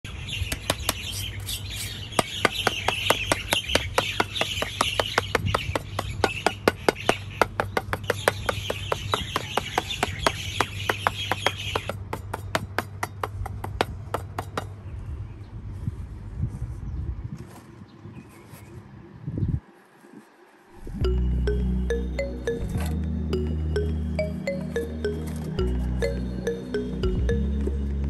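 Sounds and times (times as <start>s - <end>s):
birds chirping: 0.0s - 12.6s, 21.0s - 27.8s
rapid sharp taps: 2.2s - 14.8s.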